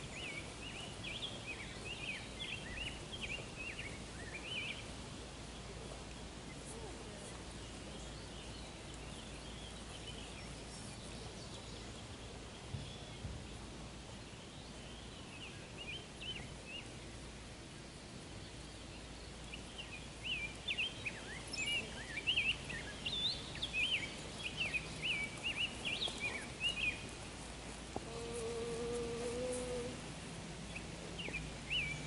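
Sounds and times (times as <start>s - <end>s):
outdoor background noise: 0.0s - 32.0s
songbird chirping and warbling: 18.7s - 27.4s.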